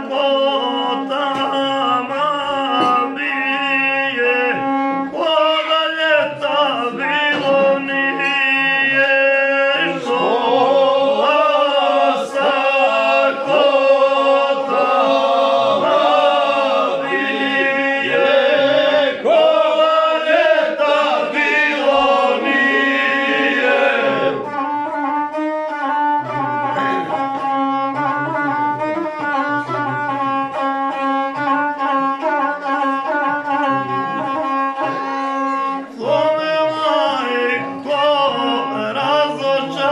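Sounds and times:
men singing a folk song: 5.4 - 24.4.

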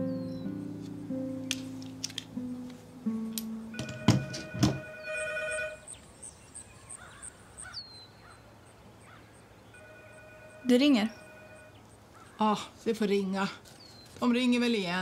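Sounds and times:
telephone trilling ring: 3.7 - 5.9, 9.8 - 11.8
sharp knocks: 3.8 - 5.0
faint bird chirps: 5.8 - 9.9.

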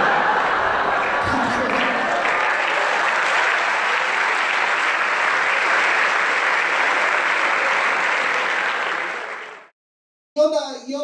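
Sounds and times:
audience clapping: 0.0 - 9.7.

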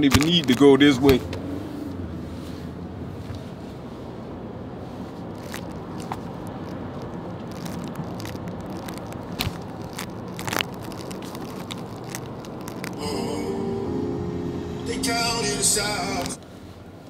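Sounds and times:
clicks and crackles: 0.0 - 0.8, 5.3 - 13.1
car rumble: 0.0 - 17.0.

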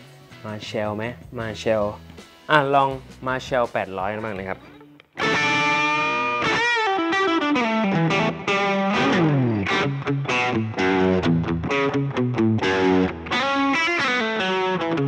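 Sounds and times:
overdriven electric guitar: 4.6 - 15.0.

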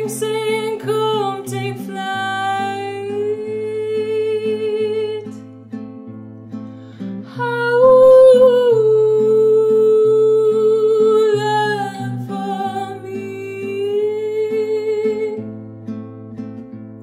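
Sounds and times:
acoustic guitar playing: 0.0 - 17.0
woman singing long note: 7.4 - 10.9.

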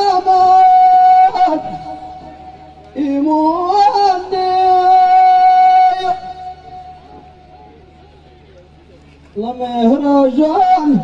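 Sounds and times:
man singing: 0.0 - 7.1, 9.4 - 11.0.

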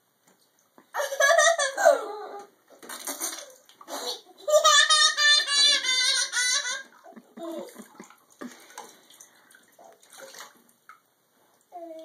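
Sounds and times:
bath water splashing: 2.7 - 4.3, 5.3 - 11.7.

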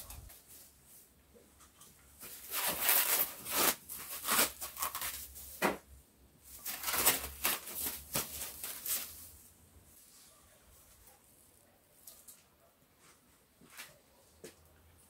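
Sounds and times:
plastic film crinkling and rustling: 2.2 - 5.8, 6.5 - 9.4.

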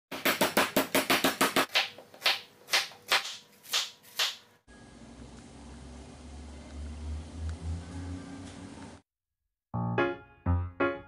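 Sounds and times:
meat pounder beating chicken: 0.1 - 3.9
low hum: 4.7 - 9.0.

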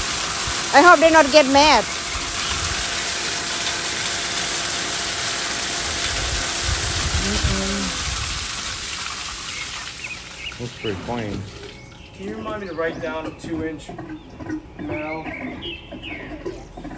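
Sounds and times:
rushing hiss of pumped water: 0.0 - 11.6.

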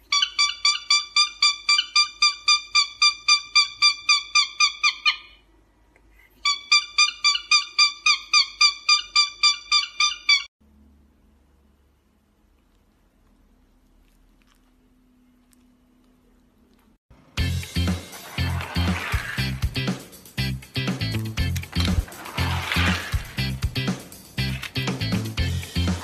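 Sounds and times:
cockatiel whistling: 6.4 - 10.5.

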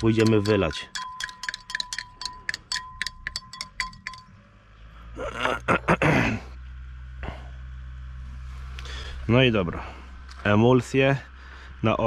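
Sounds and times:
teaspoon clinking against glass: 0.0 - 4.3.

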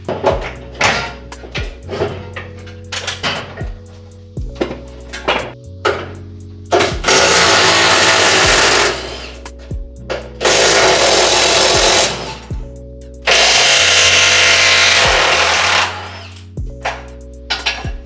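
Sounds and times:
music with steady beat: 0.0 - 18.0
power tool running: 7.0 - 9.4, 10.4 - 12.5, 13.2 - 16.4.

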